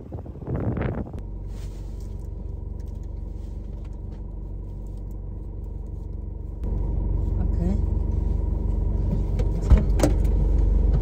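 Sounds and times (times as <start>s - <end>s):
car engine and road drone: 0.0s - 11.0s.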